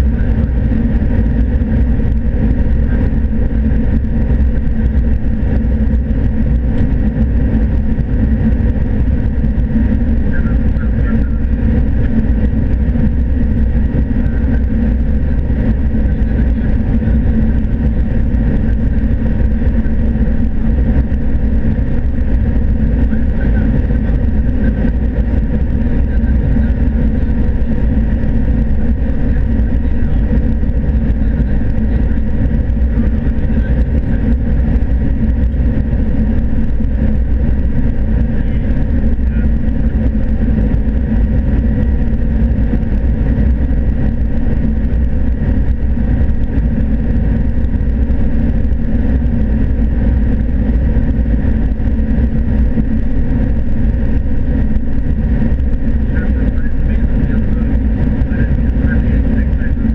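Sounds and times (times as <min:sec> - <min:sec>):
combine harvester drone: 0:00.0 - 0:59.9
steady hum tones: 0:00.0 - 0:59.9.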